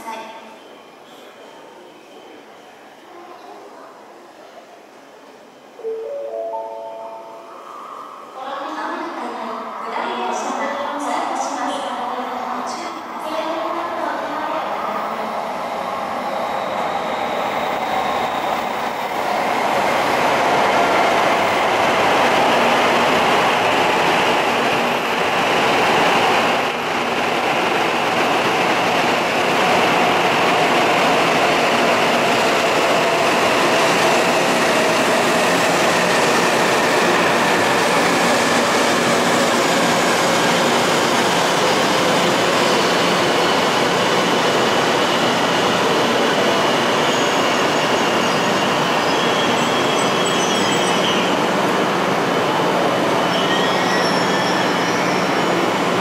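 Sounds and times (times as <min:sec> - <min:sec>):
train wheels rushing: 0:16.3 - 0:56.0.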